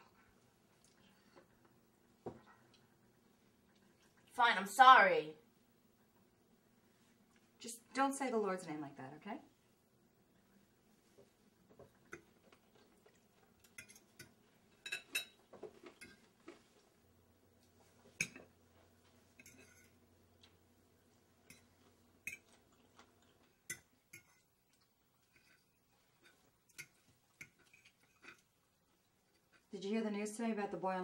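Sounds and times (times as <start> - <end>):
cutlery clinking on plates: 13.6 - 16.6, 18.1 - 18.5.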